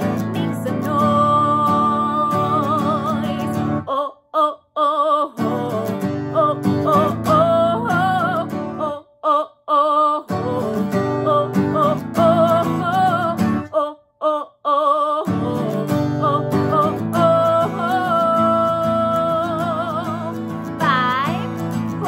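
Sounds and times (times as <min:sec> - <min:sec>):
strummed acoustic guitar: 0:00.0 - 0:03.9, 0:05.4 - 0:09.0, 0:10.3 - 0:13.7, 0:15.3 - 0:22.0
woman singing: 0:00.0 - 0:22.0.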